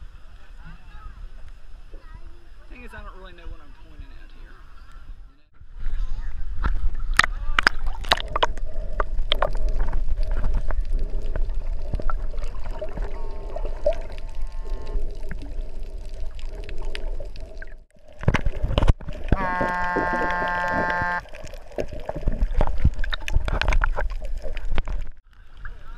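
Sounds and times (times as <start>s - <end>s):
muffled underwater water rush: 0.0s - 25.9s
clicks and crackles: 6.6s - 25.3s
humming tone: 19.3s - 21.3s.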